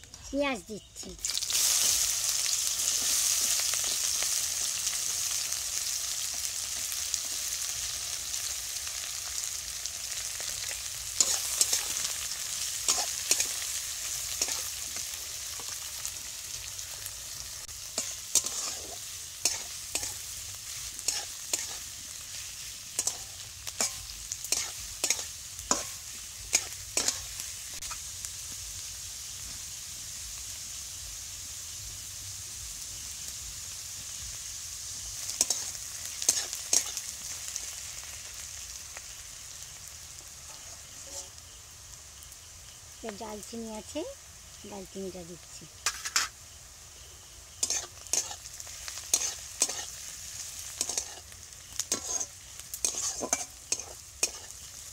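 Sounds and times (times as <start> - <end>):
onions sizzling in hot oil: 0.0 - 54.9
metal spatula scraping pan: 18.0 - 20.2, 45.8 - 46.3, 51.8 - 54.5.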